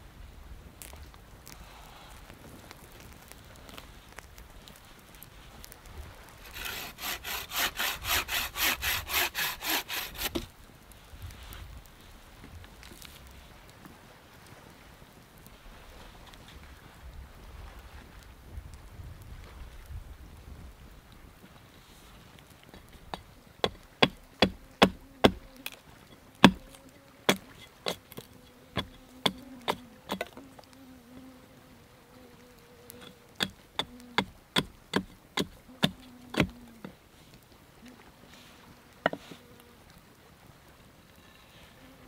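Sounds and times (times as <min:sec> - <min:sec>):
axe chopping wood: 0:06.5 - 0:10.5, 0:23.1 - 0:25.5, 0:26.4 - 0:26.7, 0:27.3 - 0:28.2, 0:28.8 - 0:30.3, 0:33.0 - 0:36.6
flying insect buzzing: 0:24.0 - 0:34.4, 0:38.8 - 0:39.8.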